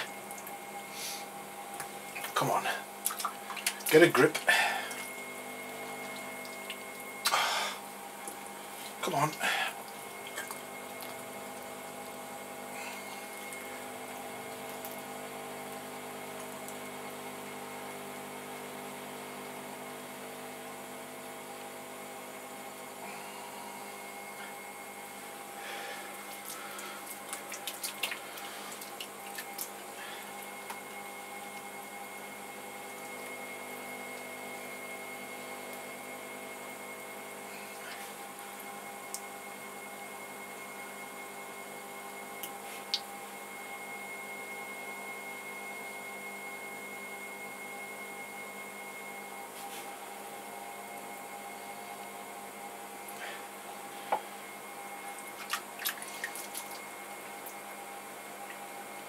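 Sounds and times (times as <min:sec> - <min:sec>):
pottery wheel humming: 0:00.0 - 0:59.0
wet clicks and slaps: 0:03.0 - 0:04.0, 0:26.4 - 0:29.8, 0:55.4 - 0:56.8
wet clay squelching: 0:26.2 - 0:31.0, 0:55.2 - 0:56.9.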